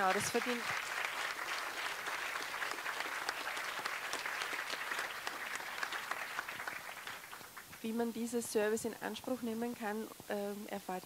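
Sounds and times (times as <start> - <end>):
audience applause: 0.0 - 7.8.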